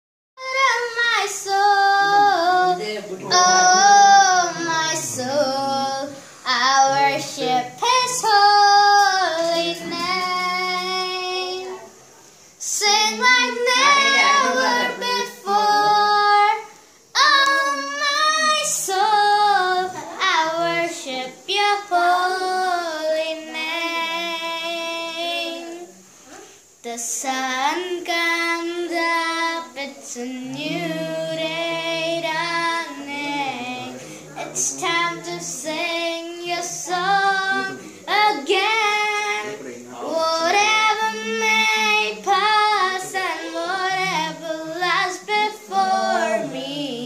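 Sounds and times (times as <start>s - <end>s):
boy singing unaccompanied: 0.4s - 47.0s
short breaths: 34.0s - 34.4s.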